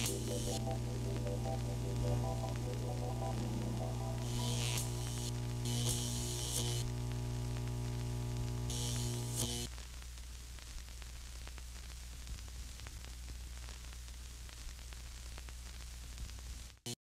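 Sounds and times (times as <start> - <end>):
held musical chord: 0.0 - 5.1
steady low hum: 0.0 - 9.6
static hiss and crackles: 0.0 - 17.0.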